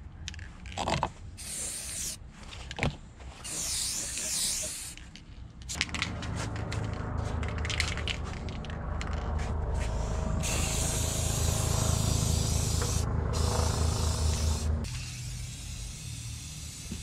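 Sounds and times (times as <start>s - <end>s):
spray paint can hissing: 1.4s - 2.2s, 3.4s - 5.0s, 9.8s - 17.0s
low steady hum: 5.0s - 14.9s.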